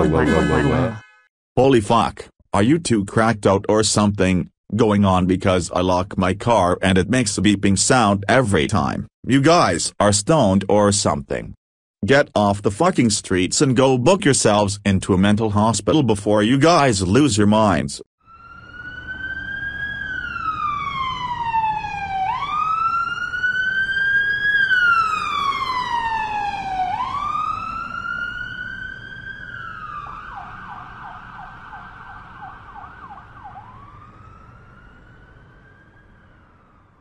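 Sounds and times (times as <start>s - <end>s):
emergency siren wailing and yelping: 18.2s - 37.0s.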